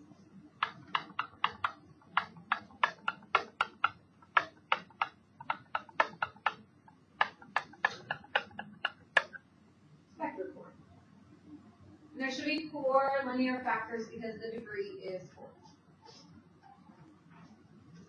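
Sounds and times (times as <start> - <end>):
stylus clicking on screen: 0.6 - 9.4.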